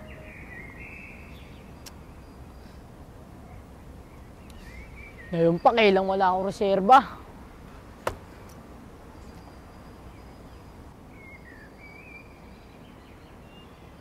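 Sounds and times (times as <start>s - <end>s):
faint bird chirps: 0.0s - 6.2s
outdoor background noise: 0.0s - 14.0s.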